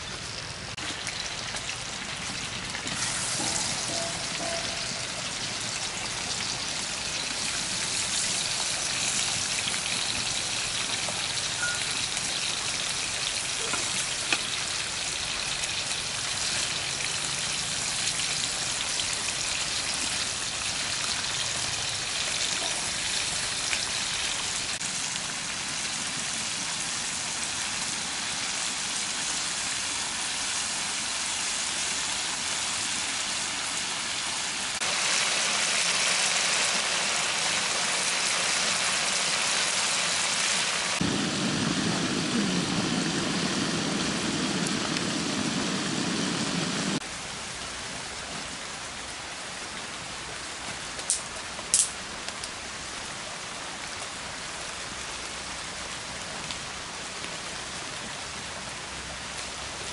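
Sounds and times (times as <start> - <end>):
oil sizzling and bubbling: 0.0 - 59.9
small oil pops: 51.0 - 52.4.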